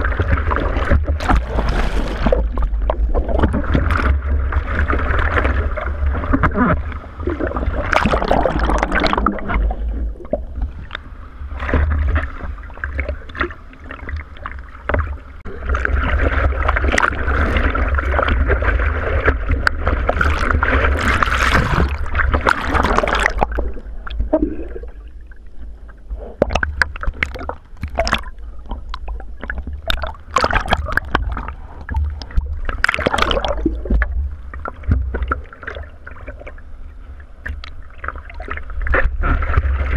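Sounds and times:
low rumble of water and wind: 0:00.0 - 0:39.9
water splashing around surfboard: 0:00.0 - 0:39.9.

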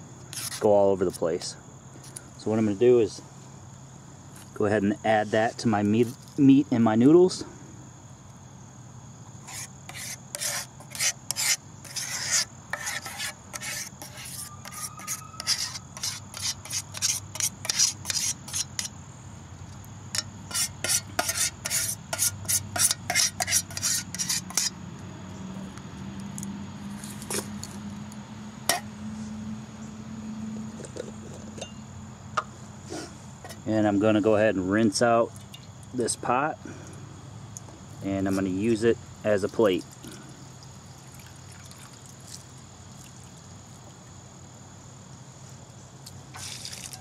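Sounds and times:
metal spoon scraping metal pot: 0:09.4 - 0:18.9, 0:20.1 - 0:24.7.

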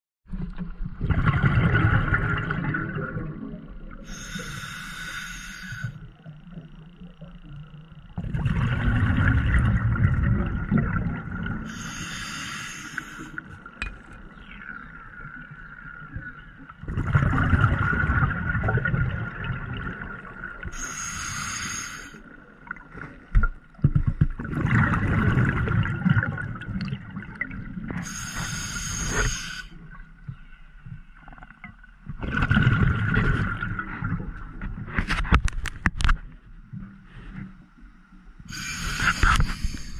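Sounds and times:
bubbles gurgling underwater: 0:00.3 - 0:04.2, 0:06.6 - 0:11.7, 0:13.6 - 0:20.8, 0:22.6 - 0:28.1, 0:31.2 - 0:34.9
hissing inhalation through regulator: 0:04.0 - 0:06.1, 0:11.7 - 0:13.5, 0:20.7 - 0:22.3, 0:28.0 - 0:29.9, 0:38.5 - 0:39.9.

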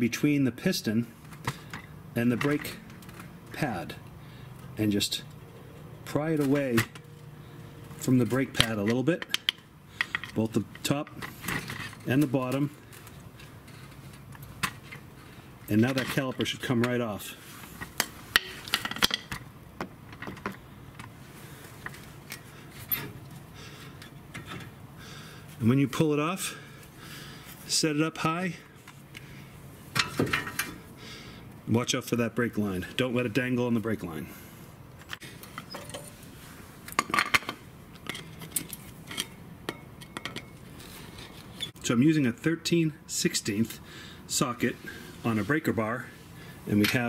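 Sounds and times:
screwdriver clinking on metal: 0:35.5 - 0:36.2, 0:37.0 - 0:40.7.

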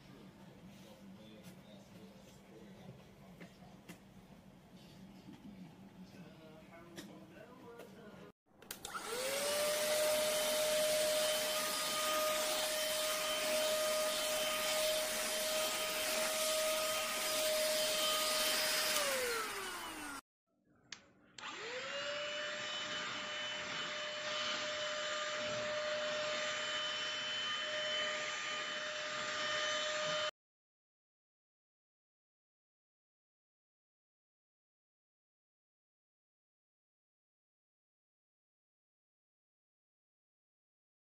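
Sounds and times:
handheld vacuum cleaner whining: 0:08.7 - 0:20.2, 0:21.4 - 0:30.3.

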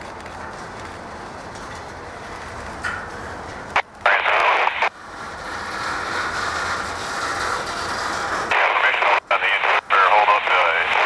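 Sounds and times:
freight train rumbling: 0:00.0 - 0:11.0
burst of radio static: 0:04.0 - 0:04.9, 0:08.5 - 0:11.0.

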